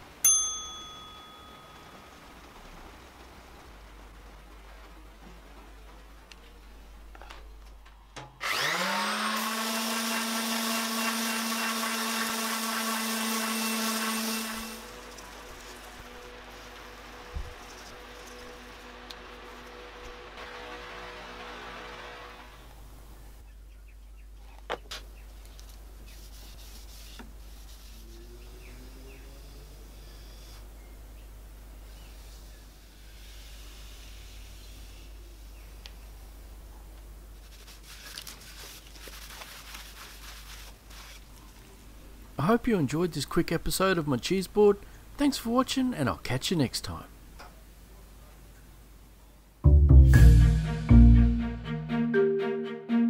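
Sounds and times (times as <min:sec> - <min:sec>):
quiet steady background noise: 0:00.0 - 0:08.7, 0:09.5 - 0:49.7
orbital sander humming: 0:08.4 - 0:22.2
cloth rubbing wooden board: 0:26.1 - 0:28.4, 0:37.4 - 0:41.3.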